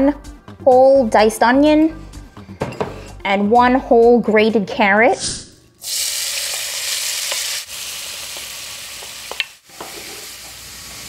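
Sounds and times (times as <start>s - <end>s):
vegetables sizzling in fat: 5.8s - 11.0s.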